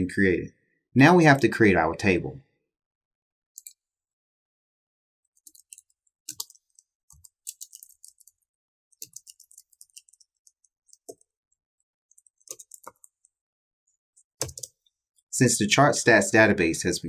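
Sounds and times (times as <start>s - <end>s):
typing on computer keyboard: 3.6s - 3.8s, 5.3s - 11.4s, 12.1s - 13.4s, 14.2s - 14.8s.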